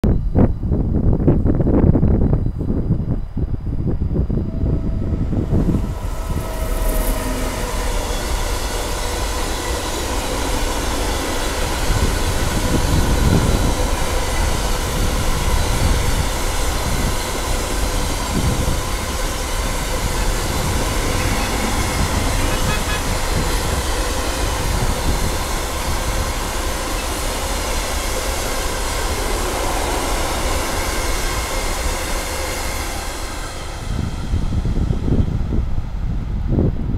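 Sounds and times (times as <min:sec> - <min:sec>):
steady ringing tone: 0:03.8 - 0:32.5
train wheels clattering on rails: 0:04.4 - 0:35.6.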